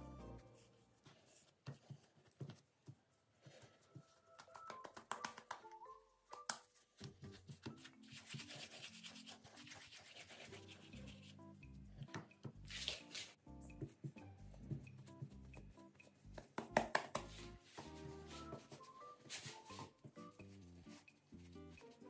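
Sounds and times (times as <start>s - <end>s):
hands patting bread dough: 4.0s - 8.6s, 13.8s - 20.6s.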